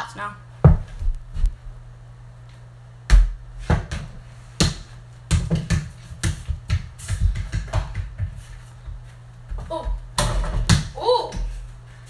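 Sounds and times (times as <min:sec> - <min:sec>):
basketball bouncing on wooden floor: 0:00.6 - 0:01.2, 0:03.1 - 0:11.5.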